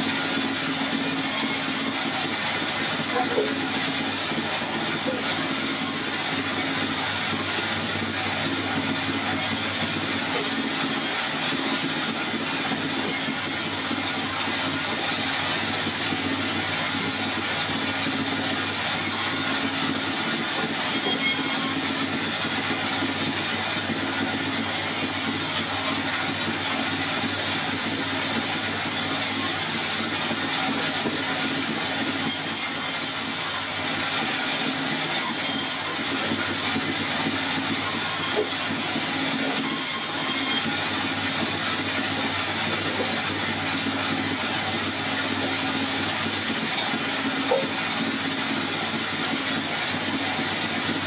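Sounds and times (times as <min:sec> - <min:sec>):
band saw running: 0:00.0 - 0:51.0
saw blade cutting wood: 0:00.0 - 0:51.0.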